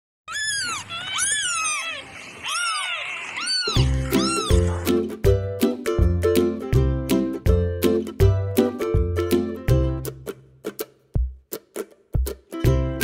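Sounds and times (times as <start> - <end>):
kittens mewing: 0.3 - 5.0.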